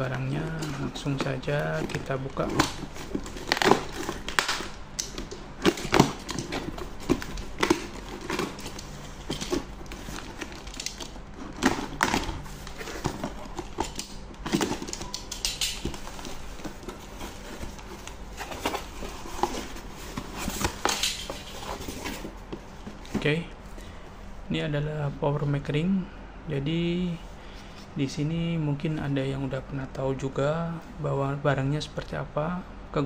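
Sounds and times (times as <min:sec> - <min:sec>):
tape crinkling: 0:00.0 - 0:23.0.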